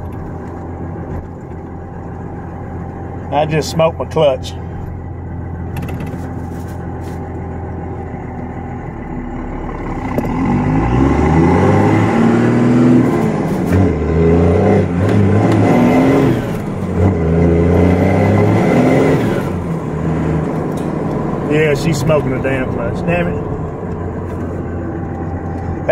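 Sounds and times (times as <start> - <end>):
diesel engine revving: 0.0 - 25.9.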